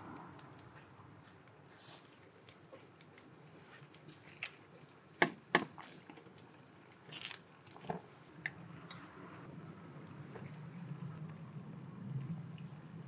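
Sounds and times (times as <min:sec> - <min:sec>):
lettuce leaves crunching and rustling: 0:07.0 - 0:07.4.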